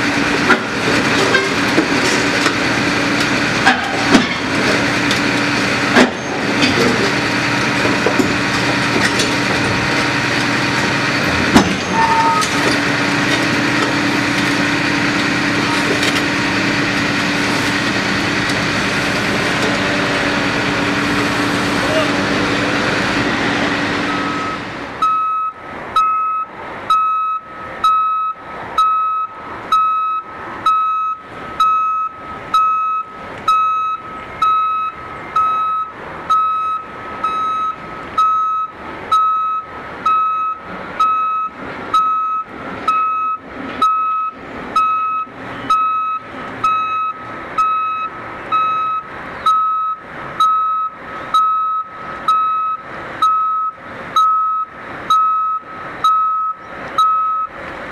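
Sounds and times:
diesel engine running: 0.0 - 57.9
loud engine noise: 0.0 - 57.9
vehicle back-up alarm beeping: 11.0 - 12.9, 24.0 - 57.6.

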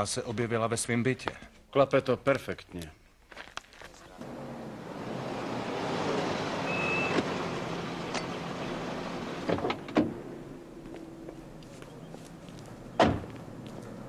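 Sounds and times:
car driving by: 4.2 - 14.0
high squeak: 6.6 - 7.2.

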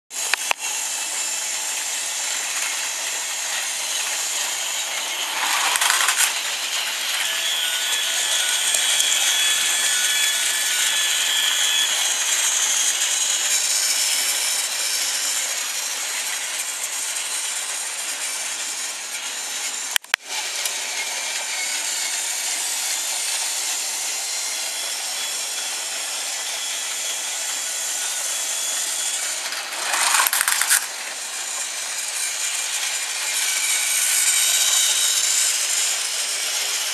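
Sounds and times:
toy train motors whirring and rattling: 0.1 - 36.9.

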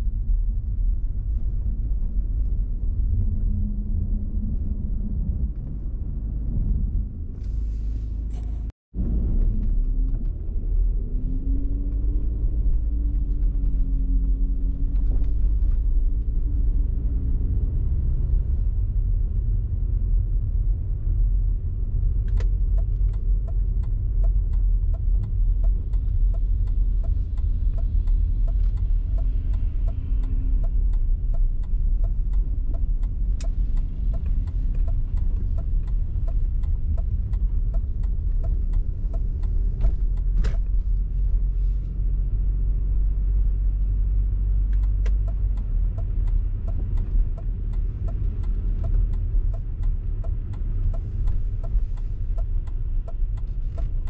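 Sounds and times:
car engine and tyres rumble: 0.0 - 54.0
faint regular ticking: 22.8 - 40.3, 44.8 - 54.0.

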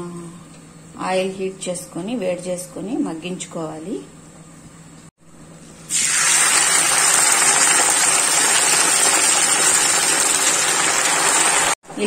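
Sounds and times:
leaves sizzling in hot oil: 5.9 - 11.8.

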